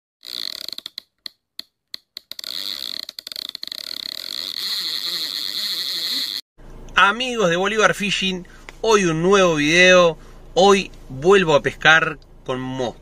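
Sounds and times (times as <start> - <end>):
high-pitched stuttering hiss: 4.6 - 6.4.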